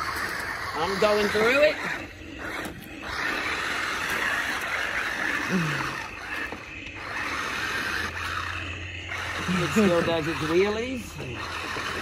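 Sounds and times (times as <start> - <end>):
toy truck motor whirring: 0.0 - 12.0.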